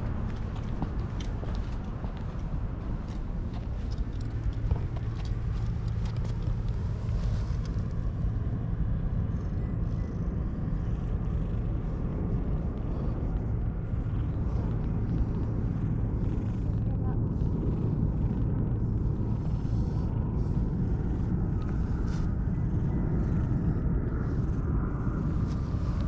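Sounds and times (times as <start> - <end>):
low mechanical rumble with hum: 0.0 - 26.0
footsteps on brick paving: 0.1 - 7.7.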